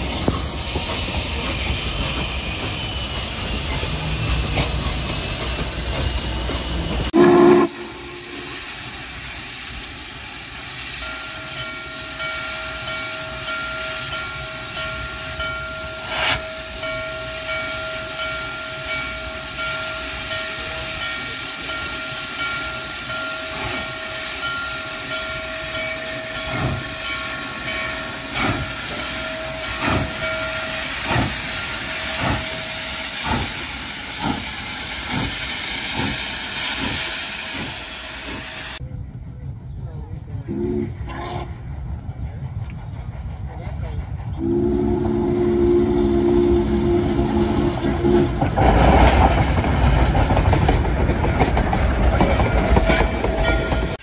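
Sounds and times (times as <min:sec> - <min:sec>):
locomotive exhaust chuffs: 0:00.0 - 0:38.8.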